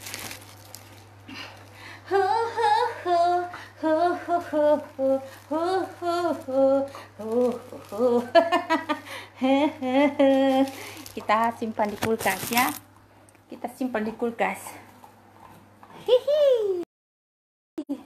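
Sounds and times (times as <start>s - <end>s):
woman humming a tune: 2.1s - 8.4s.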